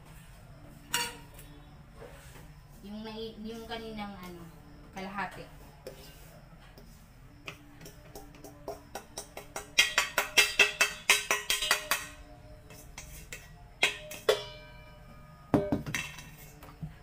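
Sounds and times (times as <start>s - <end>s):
metal bowl knocking and ringing: 9.2s - 12.2s, 13.8s - 16.4s.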